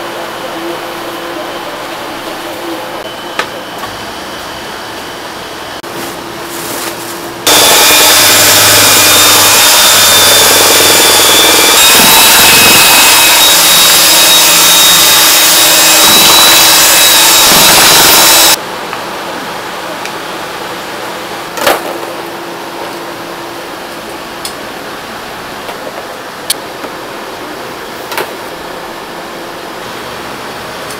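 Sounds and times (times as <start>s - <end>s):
electric mixer motor whining: 7.5s - 18.6s.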